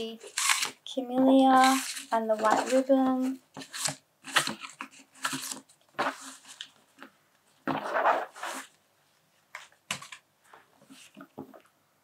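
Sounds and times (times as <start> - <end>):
paper and ribbon rustling: 0.0 - 6.8.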